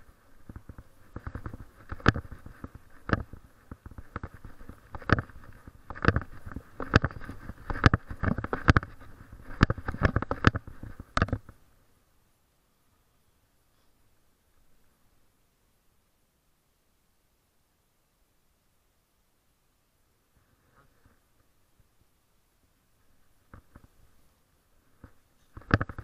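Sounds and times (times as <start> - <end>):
camera knocking with footsteps: 0.0 - 11.6, 25.0 - 26.0
crackling and rustling handling noise: 0.0 - 11.7, 22.9 - 26.0.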